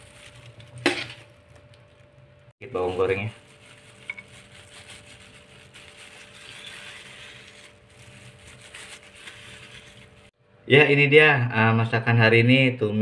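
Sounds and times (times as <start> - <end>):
plastic glove rustling: 0.0 - 10.4.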